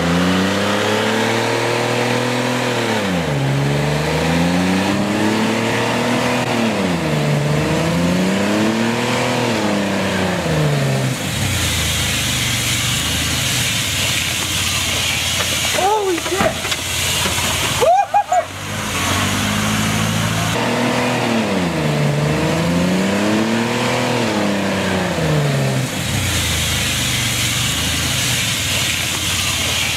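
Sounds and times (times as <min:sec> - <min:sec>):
truck engine revving: 0:00.0 - 0:29.9
steady hiss: 0:11.2 - 0:17.9, 0:26.0 - 0:29.9.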